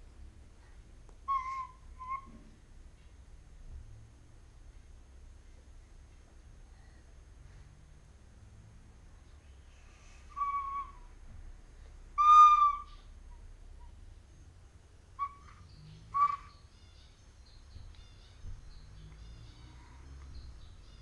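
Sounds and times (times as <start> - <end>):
wooden flute notes: 12.2 - 13.0.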